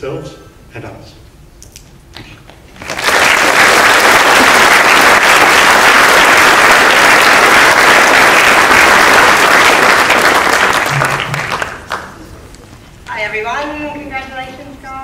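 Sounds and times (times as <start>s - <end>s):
large audience applauding: 2.7s - 12.3s.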